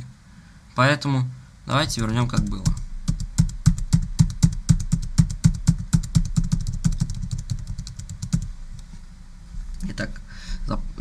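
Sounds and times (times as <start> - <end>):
keyboard keys tapping: 2.0 - 8.5.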